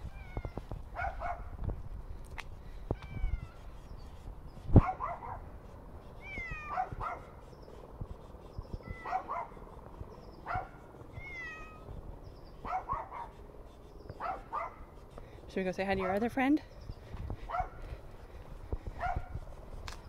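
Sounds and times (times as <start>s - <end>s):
low wind rumble on microphone: 0.0s - 20.0s
cat meowing: 6.2s - 6.8s, 11.1s - 11.9s.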